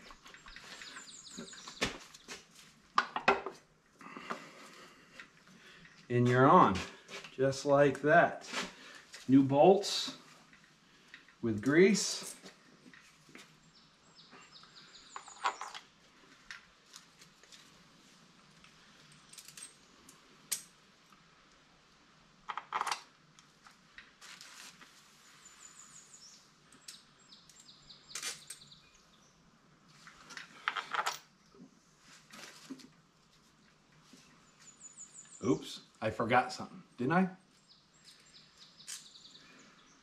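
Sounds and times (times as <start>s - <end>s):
small metal parts clinking: 15.1s - 15.9s, 19.0s - 20.7s, 22.5s - 23.1s, 30.3s - 31.3s.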